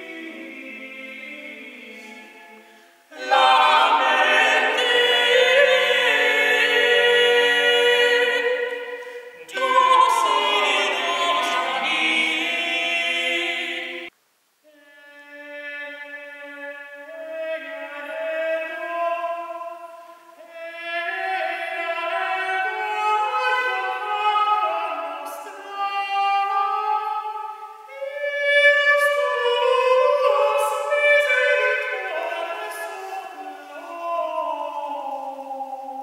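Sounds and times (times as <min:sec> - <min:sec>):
men singing polyphony: 0:00.0 - 0:14.1.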